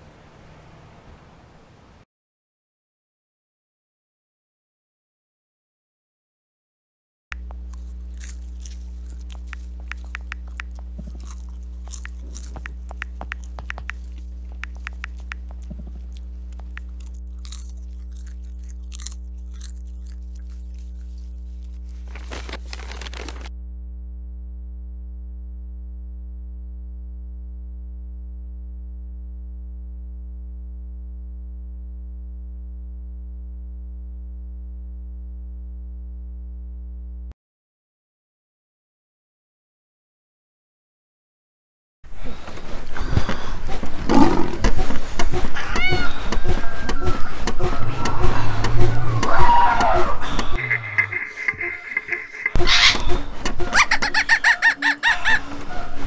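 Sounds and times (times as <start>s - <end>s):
crunching and chewing snack: 7.4s - 23.5s, 42.2s - 52.5s
low electrical hum: 7.4s - 37.3s.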